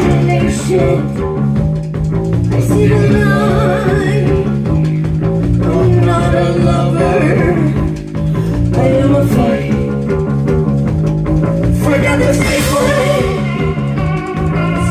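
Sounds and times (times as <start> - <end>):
woman singing: 0.0 - 1.4, 2.5 - 4.9, 5.6 - 10.1, 11.8 - 13.8
live rock band playing: 0.0 - 14.9.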